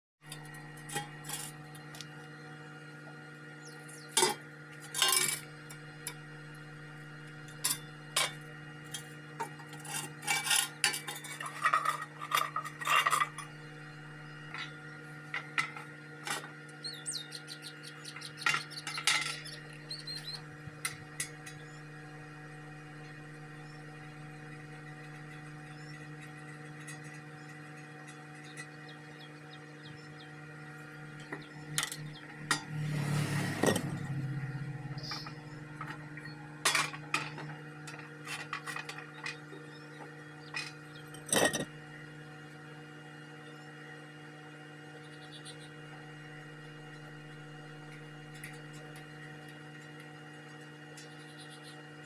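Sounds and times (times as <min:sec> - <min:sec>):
steady electrical hum: 0:00.2 - 0:52.0
steel sheets clinking and scraping: 0:09.4 - 0:13.4.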